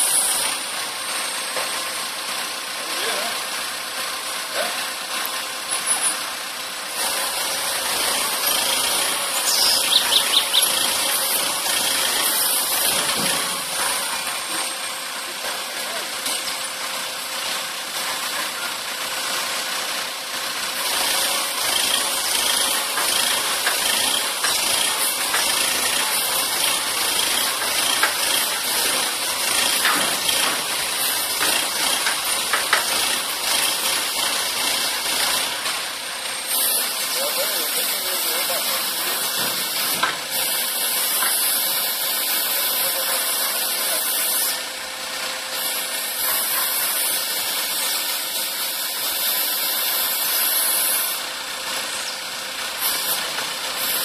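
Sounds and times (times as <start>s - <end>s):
diesel engine and hydraulics droning: 0.0s - 54.0s.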